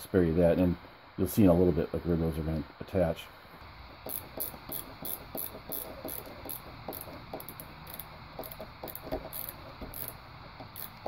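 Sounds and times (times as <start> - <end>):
small clicks and scratchy ticks: 3.6 - 11.0.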